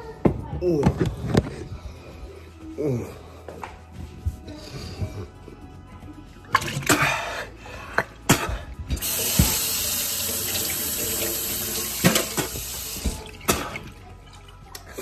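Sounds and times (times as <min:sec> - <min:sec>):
faucet running into sink: 0:09.0 - 0:13.9.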